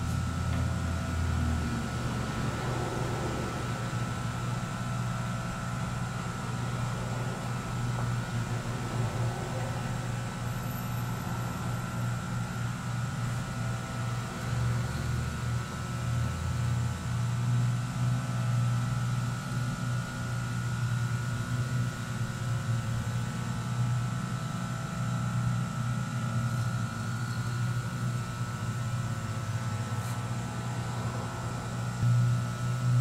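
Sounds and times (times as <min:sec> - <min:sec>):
machinery humming: 0:00.0 - 0:24.2, 0:26.3 - 0:33.0
high whine: 0:27.1 - 0:33.0.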